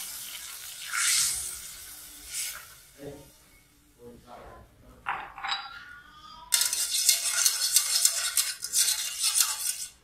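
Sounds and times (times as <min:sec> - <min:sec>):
utensil stirring in metal saucepan: 0:06.5 - 0:10.0.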